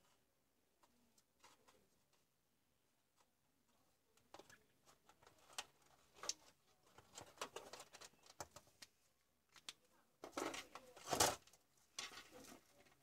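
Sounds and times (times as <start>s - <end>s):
rustling of wires: 3.0s - 13.0s.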